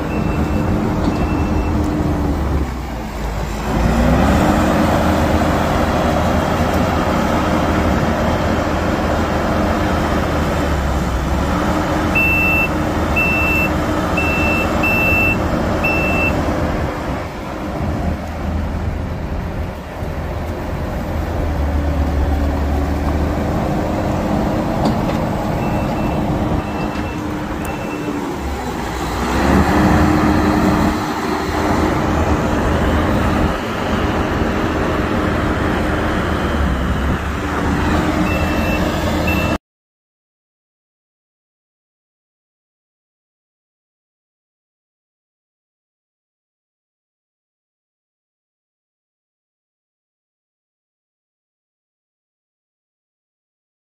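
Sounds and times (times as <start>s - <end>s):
diesel engine revving under load: 0.0s - 39.6s
backup alarm beeping: 12.2s - 16.4s, 25.6s - 28.2s, 37.9s - 39.6s.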